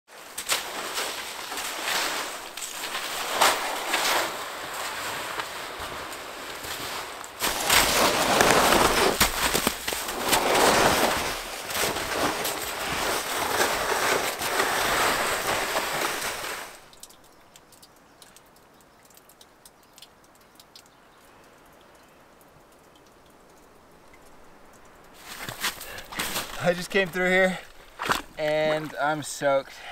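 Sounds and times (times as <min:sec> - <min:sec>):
footsteps splashing through slush: 0:00.1 - 0:17.1, 0:25.2 - 0:29.6
faint ticks: 0:16.9 - 0:25.7.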